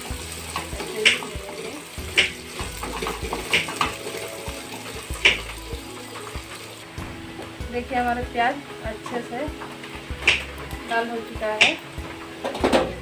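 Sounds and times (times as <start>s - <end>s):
onions sizzling in oil: 0.0s - 7.6s.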